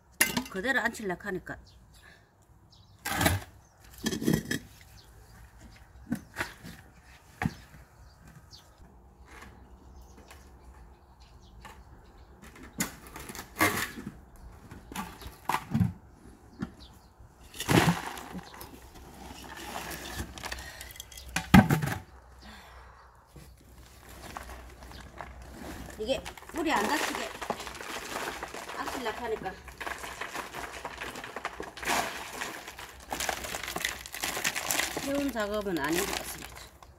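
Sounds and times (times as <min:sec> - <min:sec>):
pot scraping: 0:17.4 - 0:21.3, 0:23.8 - 0:36.6.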